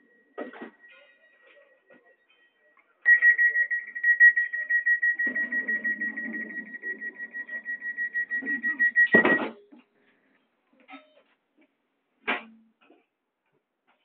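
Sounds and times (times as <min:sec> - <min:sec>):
rapid high-pitched electronic beeps: 0:03.1 - 0:09.5.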